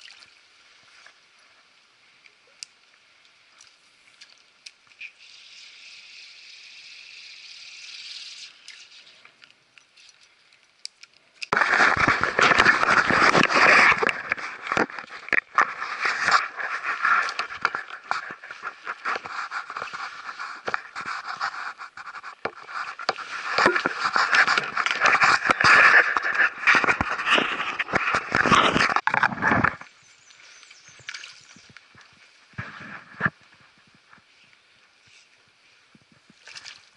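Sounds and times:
fabric rubbing on microphone: 0:11.5 - 0:29.8.

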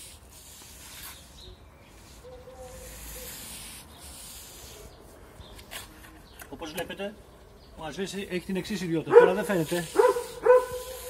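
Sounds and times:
brush scrubbing wall: 0:00.0 - 0:05.1, 0:09.3 - 0:11.0.

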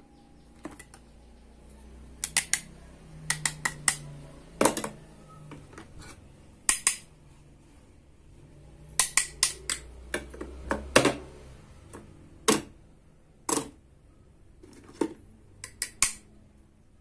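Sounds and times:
plastic toys clicking and clacking: 0:02.2 - 0:02.7, 0:03.3 - 0:04.0, 0:09.0 - 0:10.6, 0:14.6 - 0:16.3.

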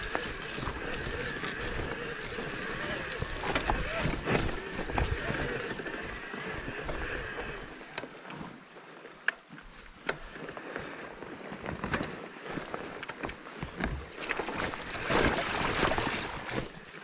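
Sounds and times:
bike knocks and rattles: 0:00.0 - 0:08.1
bike tyre and trail noise: 0:00.0 - 0:17.0.

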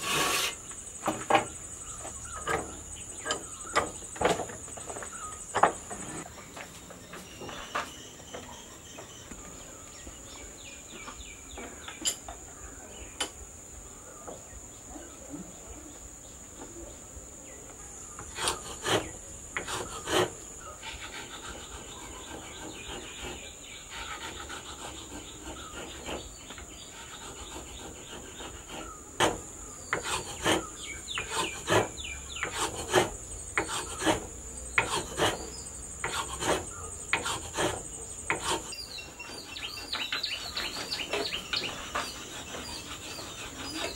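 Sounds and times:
hand file rasping on wood: 0:00.0 - 0:00.6, 0:18.2 - 0:43.9
high insect drone: 0:09.0 - 0:43.9.

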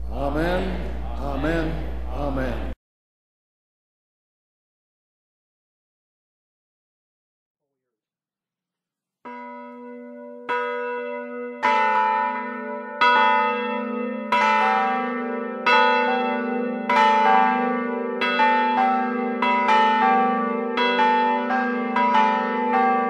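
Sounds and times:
large church bells ringing: 0:09.3 - 0:23.0.

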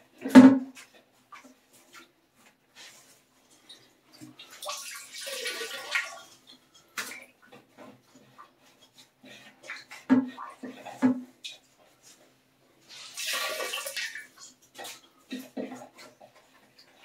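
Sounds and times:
water splashing and trickling: 0:02.8 - 0:12.2, 0:12.8 - 0:17.0.

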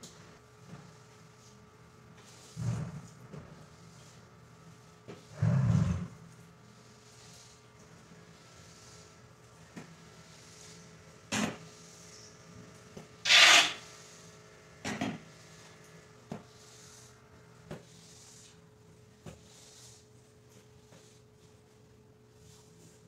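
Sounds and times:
squeegee scraping wet tiled floor: 0:13.3 - 0:13.9.

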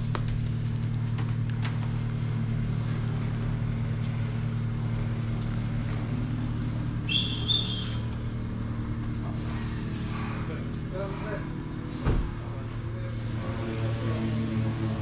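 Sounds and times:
low mechanical hum: 0:00.0 - 0:15.0
short high chirp: 0:07.1 - 0:08.0.

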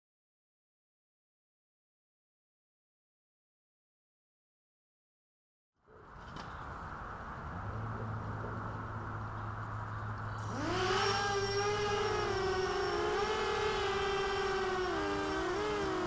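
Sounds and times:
quadcopter motors whining: 0:10.3 - 0:16.0.

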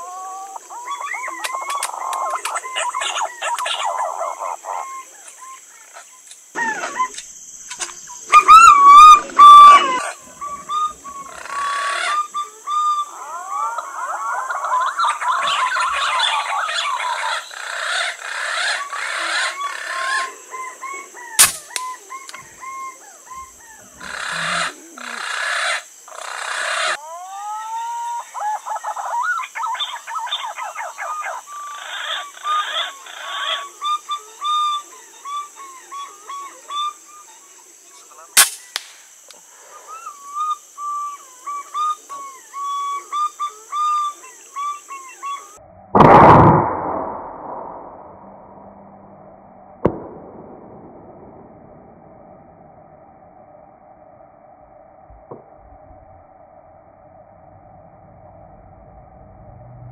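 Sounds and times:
whistling pigeon calls: 0:08.3 - 0:25.2
air rifle cracks: 0:21.4 - 0:21.8, 0:38.4 - 0:39.1
bursts of rushing noise: 0:46.0 - 0:49.1.

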